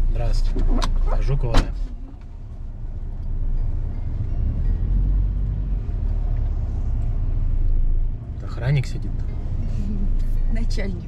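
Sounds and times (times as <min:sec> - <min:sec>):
car engine and road noise: 0:00.0 - 0:11.0.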